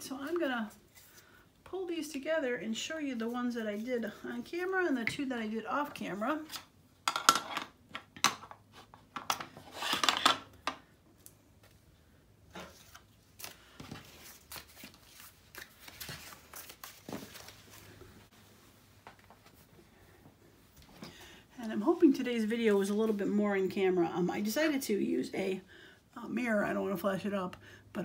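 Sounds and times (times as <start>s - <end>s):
paper cards rustling and scraping: 0.2s - 1.4s, 8.7s - 10.4s, 12.5s - 18.0s.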